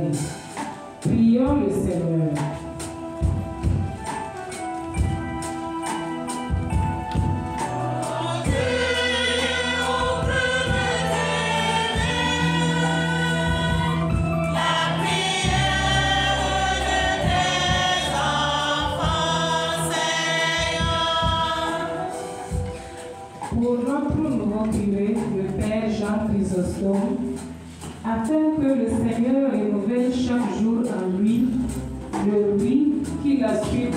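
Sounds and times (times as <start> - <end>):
church choir singing: 7.1 - 22.9.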